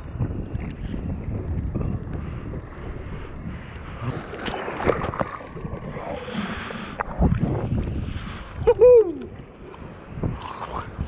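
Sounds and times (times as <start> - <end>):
ocean surf splashing: 2.8 - 11.0.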